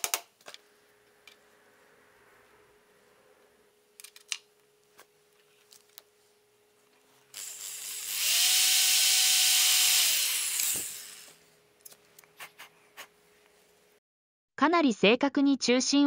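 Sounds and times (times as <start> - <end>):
drill boring into wood: 7.4 - 11.4.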